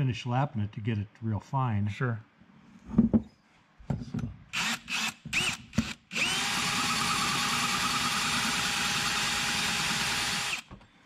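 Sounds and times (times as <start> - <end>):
cordless drill spinning a cutter: 4.5 - 10.7.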